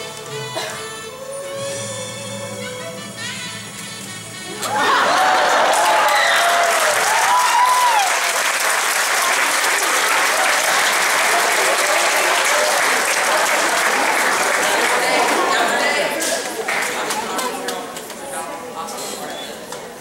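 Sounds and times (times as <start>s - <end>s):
audience applauding: 4.0s - 18.3s
person cheering: 4.6s - 8.4s.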